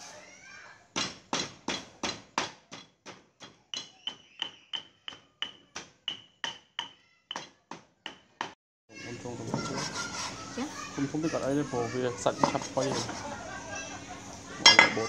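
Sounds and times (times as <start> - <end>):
stone pestle pounding in mortar: 1.0 - 8.6.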